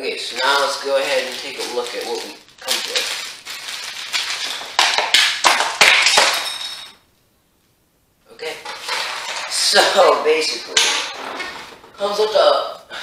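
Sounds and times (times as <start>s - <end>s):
plastic bag crinkling: 0.2s - 6.6s.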